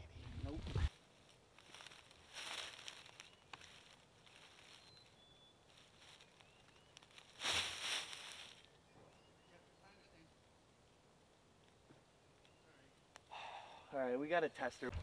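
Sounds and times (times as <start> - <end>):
rustling in dry leaves: 0.3 - 8.8
faint high chirps: 2.5 - 8.0, 8.6 - 10.3.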